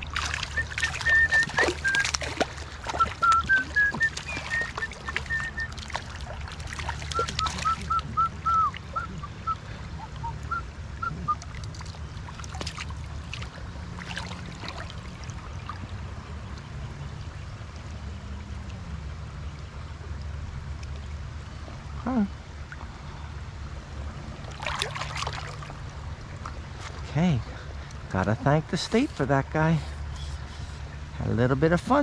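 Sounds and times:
bird calling high notes: 0.0s - 2.2s, 3.0s - 5.9s, 7.0s - 11.5s
sharp splashes: 0.0s - 15.9s, 24.4s - 26.0s
stream water running: 0.0s - 32.0s.

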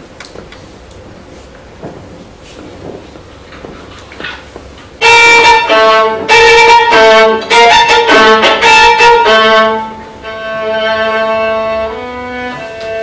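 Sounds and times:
solo violin bowed: 5.0s - 13.0s.

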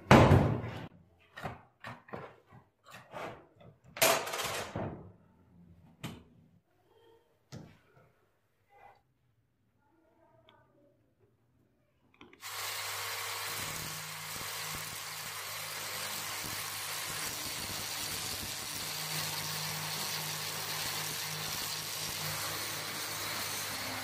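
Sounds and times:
angle grinder grinding steel: 12.4s - 24.0s.

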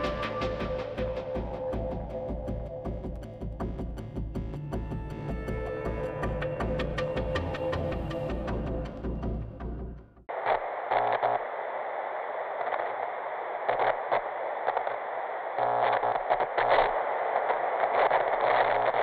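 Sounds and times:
crackling static hiss: 10.3s - 19.0s.

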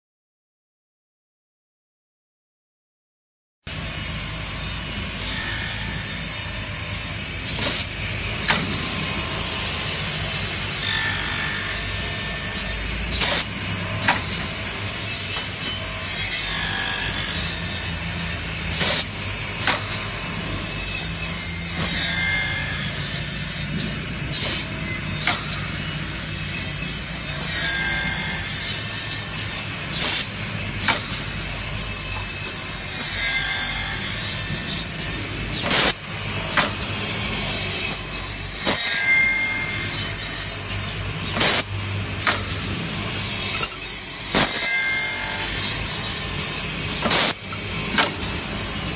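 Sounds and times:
blade whine cutting aluminium: 3.7s - 48.9s
sharp machine clacks: 10.7s - 16.4s, 17.3s - 20.1s, 20.7s - 48.9s
milling machine hum: 39.6s - 48.9s.

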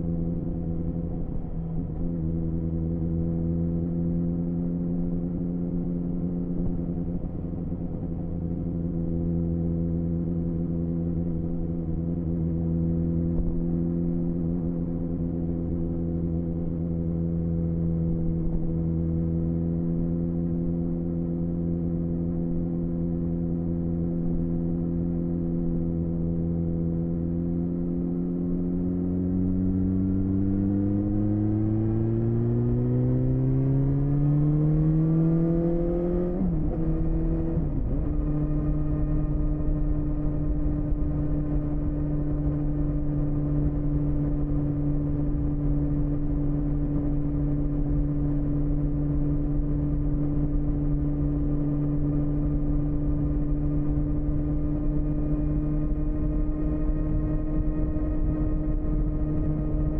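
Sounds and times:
motorcycle engine revving: 27.2s - 59.9s.

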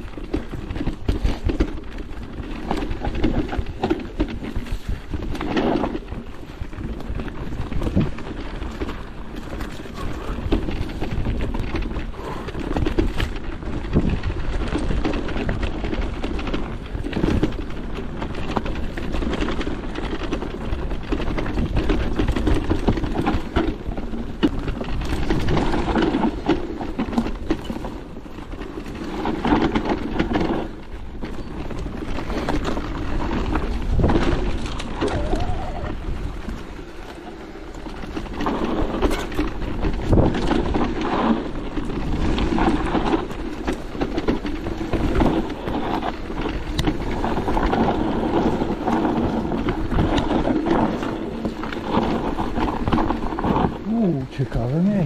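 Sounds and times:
mountain bike rattling over stones: 0.0s - 55.0s.

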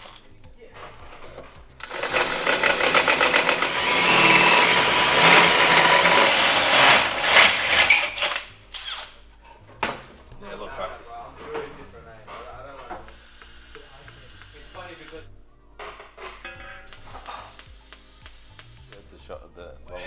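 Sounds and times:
power tool running: 1.8s - 8.4s.

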